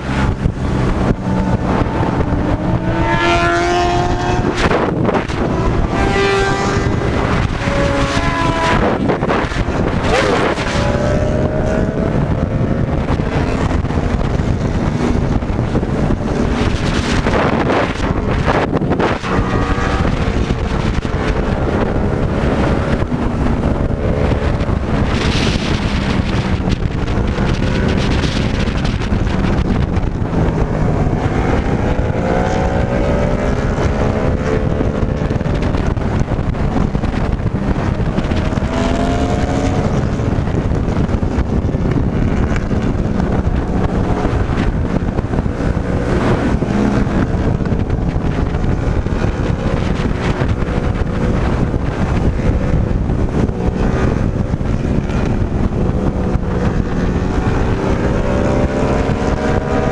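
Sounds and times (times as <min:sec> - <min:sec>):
motorcycle engine running: 0:00.0 - 0:59.9
wind noise on microphone: 0:00.0 - 0:59.9.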